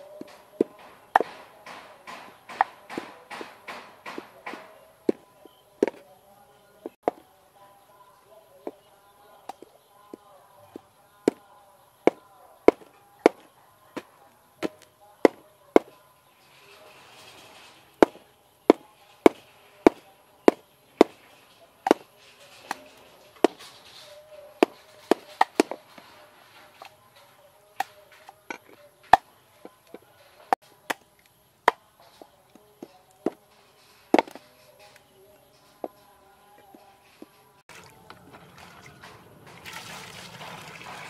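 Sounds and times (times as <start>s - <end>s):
cleaver chopping on wooden board: 0.6s - 4.7s.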